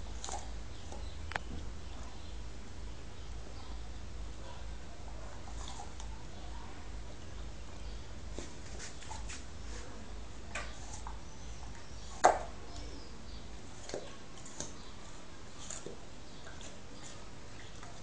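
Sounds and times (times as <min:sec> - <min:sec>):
dog crunching an apple: 0:00.0 - 0:01.0, 0:05.4 - 0:06.1, 0:10.5 - 0:11.3, 0:13.6 - 0:18.0.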